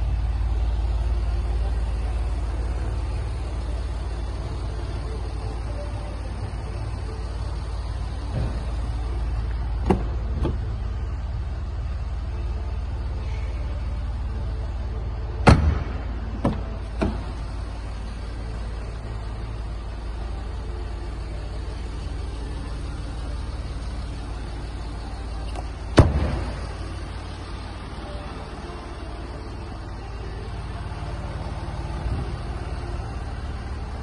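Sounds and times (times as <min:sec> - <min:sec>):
steady low rumble: 0:00.0 - 0:34.0
car door shutting thud: 0:09.8 - 0:10.7, 0:15.4 - 0:17.4, 0:25.5 - 0:26.6.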